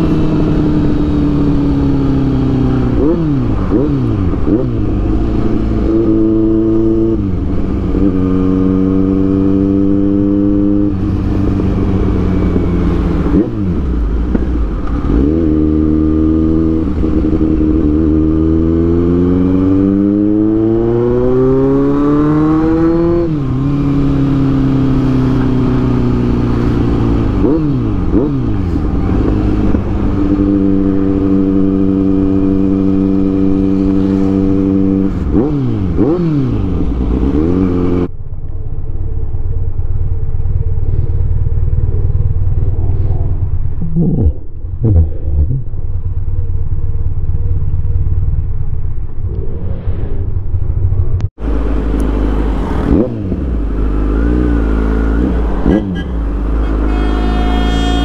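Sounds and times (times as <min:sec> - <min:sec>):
motorcycle engine at road speed: 0:00.0 - 0:58.0.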